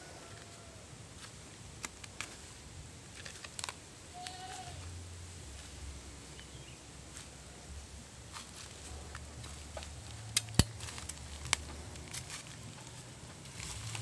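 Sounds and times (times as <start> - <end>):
leaves crackling underfoot: 0.1 - 14.0
twigs snapping: 3.1 - 4.4, 9.1 - 14.0.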